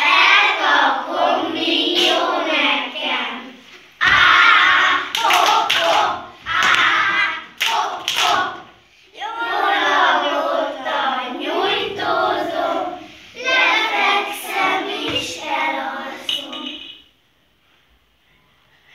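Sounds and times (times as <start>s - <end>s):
children singing together: 0.0s - 17.0s
children's voices: 0.0s - 17.0s
children clapping: 1.9s - 2.2s, 4.6s - 8.7s.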